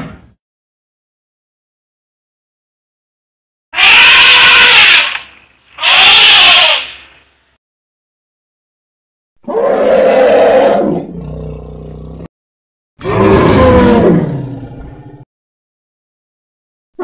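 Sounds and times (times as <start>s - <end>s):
elephant calls: 3.8s - 7.2s.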